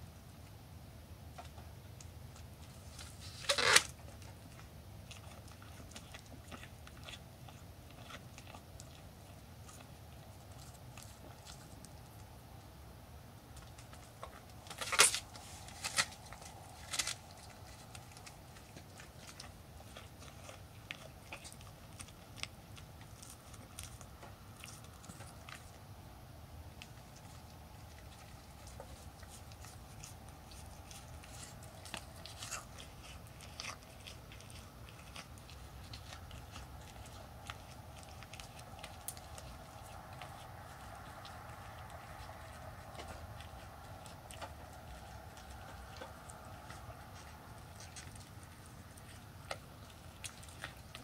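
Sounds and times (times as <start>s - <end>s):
deer crunching and chewing feed: 0.0s - 51.0s.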